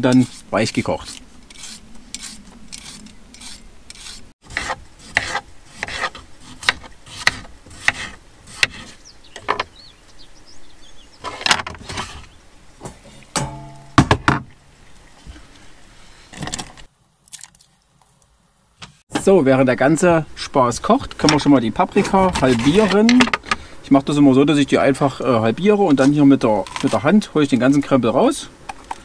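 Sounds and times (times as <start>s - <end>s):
peeler scraping potato skin: 0.0s - 9.0s
knife cutting on wooden board: 1.1s - 9.0s
metallic clank with ringing: 13.3s - 14.1s.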